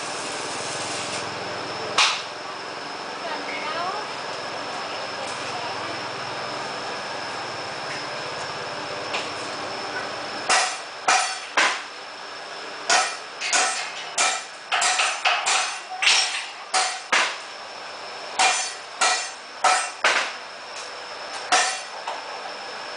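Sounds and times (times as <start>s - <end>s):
hammer striking iron: 10.5s - 11.8s, 12.9s - 17.4s, 18.4s - 20.3s, 21.5s - 21.9s.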